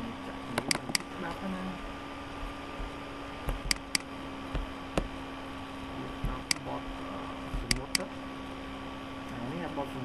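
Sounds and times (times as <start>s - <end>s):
low electrical hum with hiss: 0.0s - 10.0s
computer mouse clicks: 0.6s - 1.1s, 3.5s - 4.1s, 7.7s - 8.1s.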